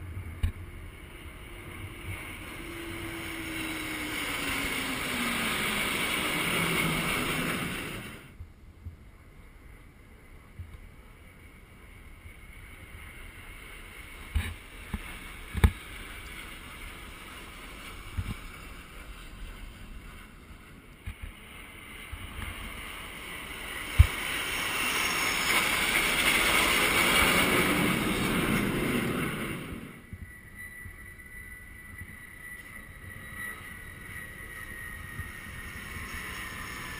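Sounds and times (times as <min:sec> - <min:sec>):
jet roar passing overhead: 0:00.0 - 0:08.4, 0:12.3 - 0:36.9
wind noise on microphone: 0:00.0 - 0:36.9.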